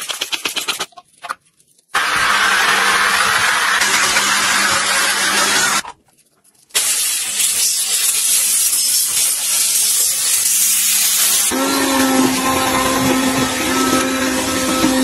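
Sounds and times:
steam cleaner hissing: 6.7 - 15.0.

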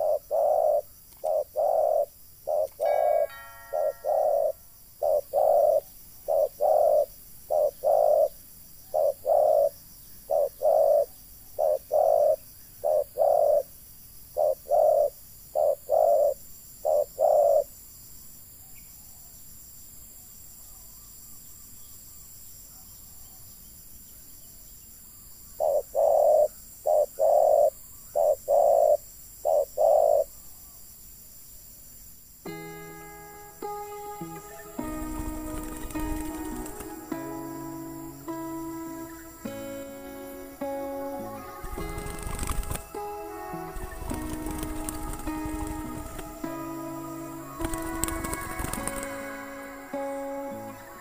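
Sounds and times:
doves cooing: 0.0 - 13.7, 14.4 - 17.7, 25.6 - 30.3, 33.6 - 51.0.

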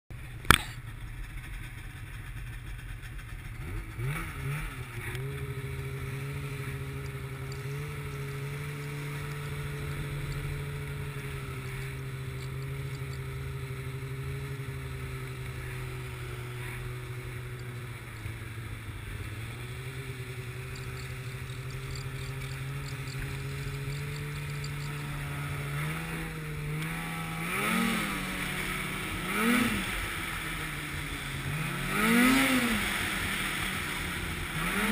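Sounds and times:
snowmobile engine idling and revving: 0.1 - 34.9
sharp click: 0.4 - 0.8.

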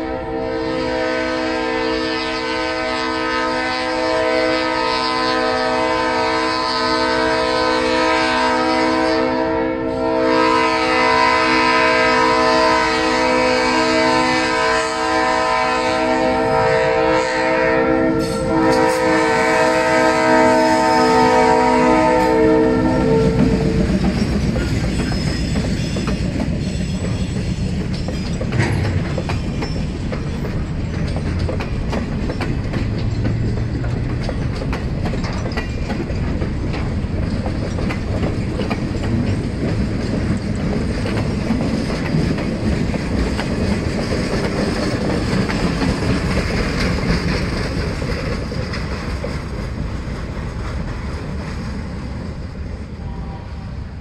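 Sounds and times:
train wheels clattering on rails: 18.1 - 53.0.

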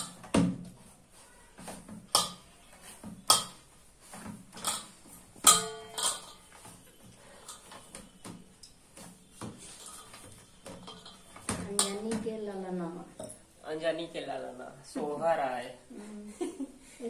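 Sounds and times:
steel bowl clanking: 4.6 - 6.6, 9.7 - 12.1.

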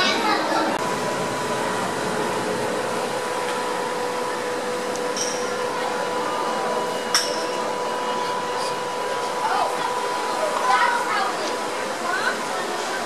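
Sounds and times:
mechanical drone with pitched hum: 0.0 - 13.0.

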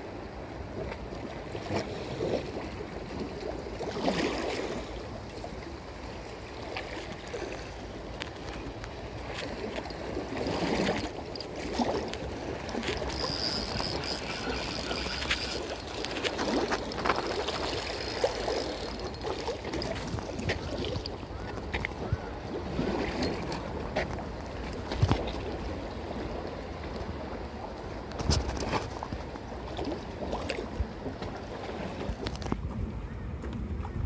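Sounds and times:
wind: 0.0 - 34.0
fishing reel clicking: 9.9 - 20.5
thin high whine: 12.8 - 20.0.

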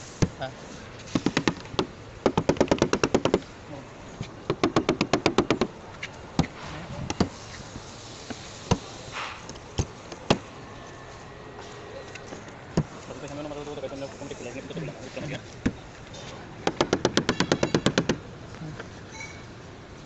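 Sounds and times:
sharp knocks on metal: 1.2 - 3.4, 16.6 - 18.2
sharp taps on car door panel: 1.2 - 3.4, 4.5 - 5.7, 16.6 - 18.2.

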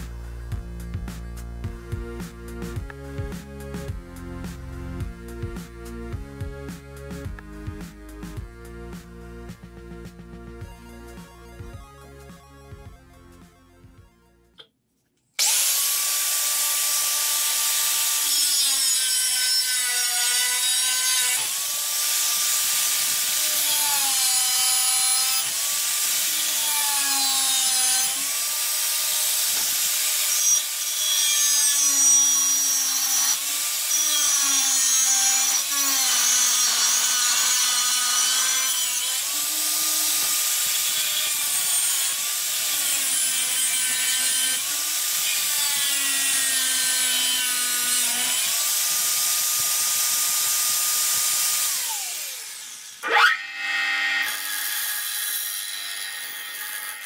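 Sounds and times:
angle grinder motor whine: 50.1 - 54.5.

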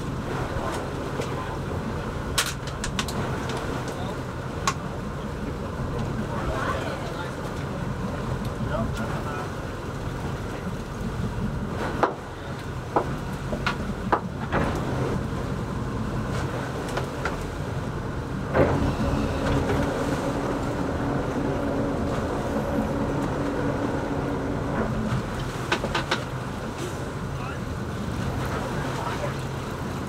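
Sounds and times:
boat motor hum: 0.0 - 30.0
wind: 0.0 - 30.0
steady pitched hum: 17.4 - 28.4.

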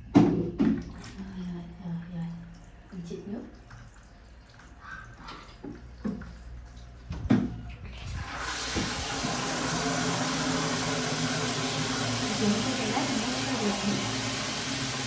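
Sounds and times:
water pouring into plastic bucket: 8.0 - 15.0.

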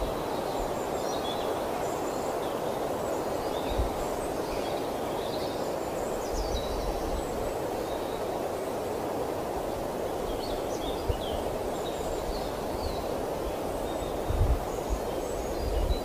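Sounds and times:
birds chirping: 9.9 - 16.0.

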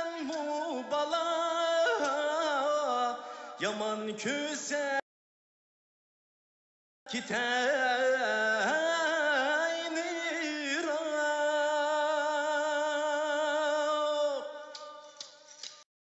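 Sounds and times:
man singing: 0.0 - 5.0, 7.1 - 15.2.

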